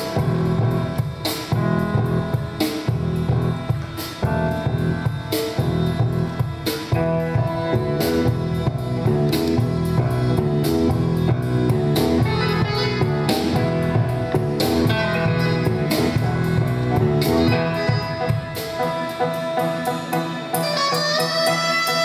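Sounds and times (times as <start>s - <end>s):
grand piano: 0.0s - 21.4s
drum kit: 0.0s - 22.0s
flute line: 12.0s - 22.0s.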